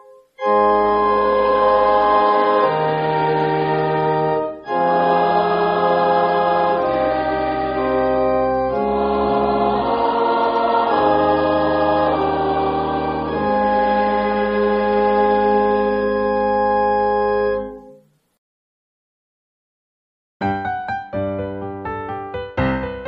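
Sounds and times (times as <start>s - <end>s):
organ chords: 0.0s - 18.2s.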